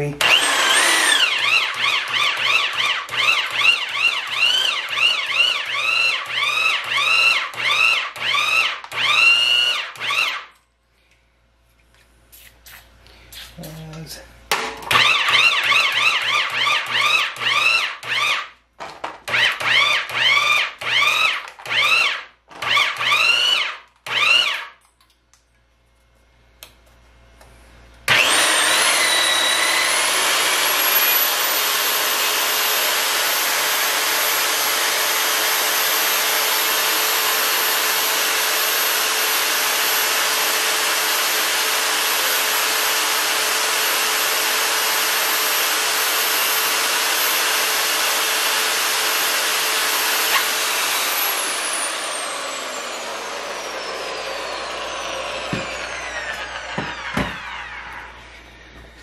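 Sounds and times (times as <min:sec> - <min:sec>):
pipe threader motor whining: 0:00.0 - 0:10.6, 0:14.9 - 0:18.5, 0:19.2 - 0:24.7, 0:28.1 - 0:59.0
short rising-and-falling whines: 0:00.2 - 0:10.4, 0:49.1 - 0:59.0.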